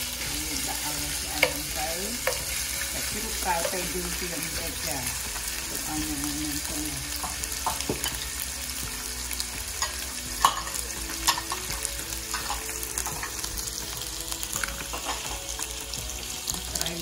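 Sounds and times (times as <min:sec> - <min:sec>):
food sizzling in hot oil: 0:00.0 - 0:17.0.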